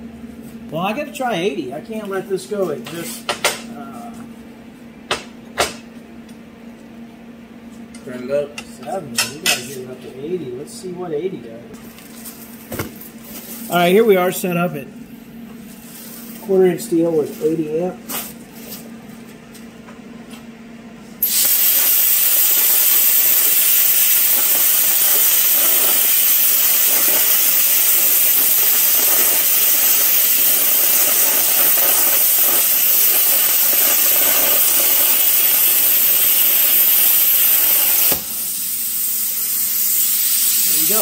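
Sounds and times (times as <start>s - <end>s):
plasma cutter hissing: 21.2s - 41.0s.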